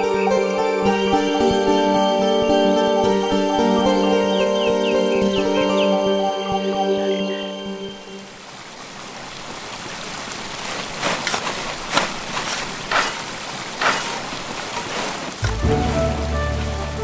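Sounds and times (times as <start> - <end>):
rushing creek water: 0.0 - 17.0
short splashes: 10.6 - 17.0.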